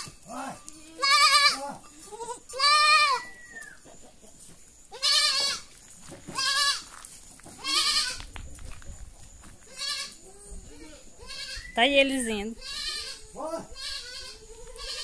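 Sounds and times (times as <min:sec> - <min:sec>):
goat kids bleating: 0:00.0 - 0:03.8, 0:04.9 - 0:07.0, 0:07.6 - 0:08.3, 0:09.6 - 0:11.8, 0:12.5 - 0:15.0.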